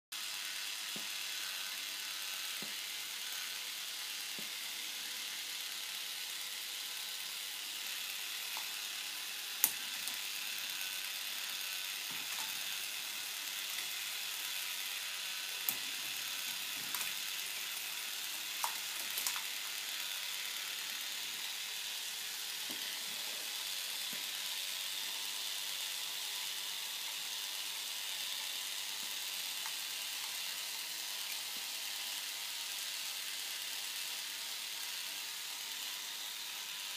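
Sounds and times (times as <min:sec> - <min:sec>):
plastic gears clattering: 0:11.9 - 0:13.0, 0:15.6 - 0:20.4
plastic balls clicking: 0:15.6 - 0:17.6, 0:18.3 - 0:19.8.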